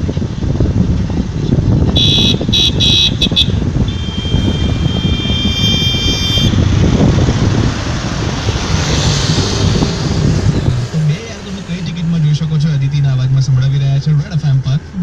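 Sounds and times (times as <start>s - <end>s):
car road and engine rumble: 0.0s - 15.0s
car horn honking: 1.9s - 6.9s.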